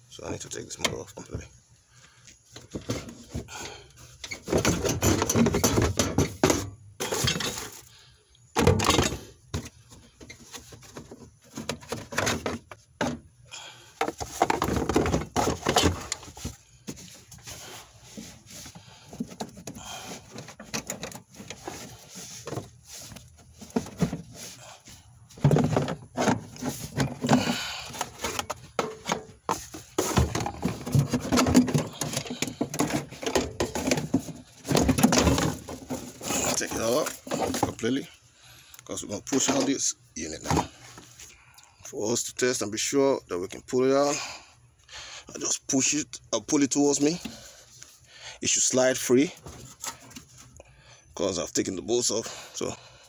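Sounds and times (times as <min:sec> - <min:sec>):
plastic clattering and knocking: 0:02.5 - 0:03.6, 0:04.2 - 0:07.8, 0:08.6 - 0:13.3, 0:14.0 - 0:17.6, 0:18.2 - 0:24.4, 0:25.3 - 0:37.9, 0:39.3 - 0:39.8.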